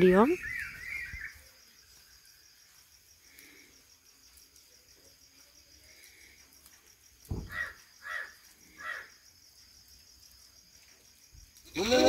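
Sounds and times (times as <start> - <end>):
crickets chirping: 0.0 - 12.0
low thump: 7.3 - 7.6
goat bleating: 11.6 - 12.0.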